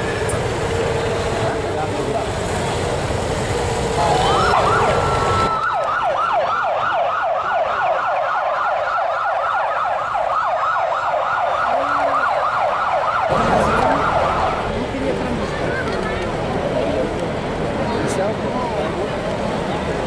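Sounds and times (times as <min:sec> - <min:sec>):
police siren yelping: 0:04.0 - 0:14.9.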